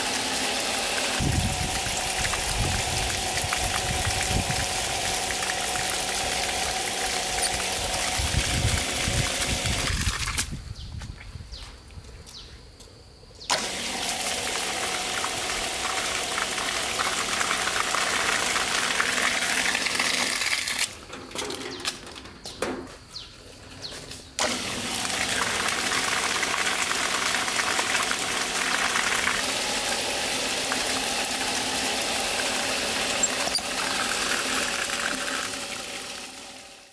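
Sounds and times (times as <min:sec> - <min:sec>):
rushing and splashing water: 0:00.0 - 0:10.4, 0:24.4 - 0:36.6
motor whine: 0:00.0 - 0:10.6, 0:24.4 - 0:36.9.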